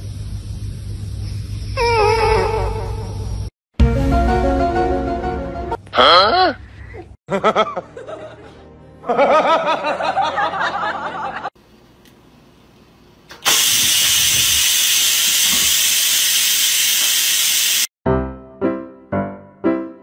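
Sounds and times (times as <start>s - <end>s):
steam hissing from rice cooker: 13.4s - 17.9s.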